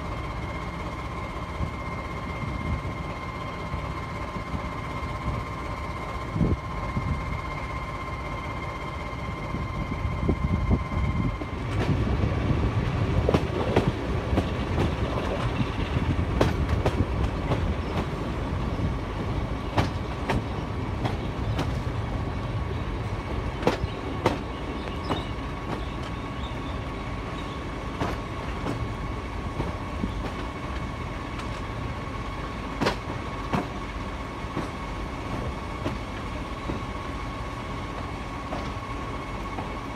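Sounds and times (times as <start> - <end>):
steady high whine: 0.0 - 39.9
train wheels rumbling on track: 0.0 - 39.9
clicks over rail joints: 19.7 - 21.8, 27.9 - 28.9, 32.8 - 33.8, 34.5 - 36.9, 38.0 - 38.8.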